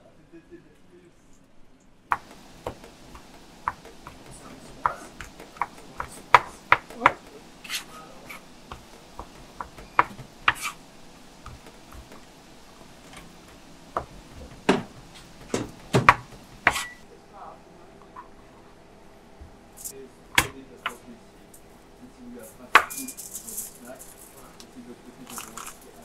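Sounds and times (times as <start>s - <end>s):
utensils and dishes knocking: 2.1s - 10.8s, 11.4s - 17.0s, 22.7s - 24.5s.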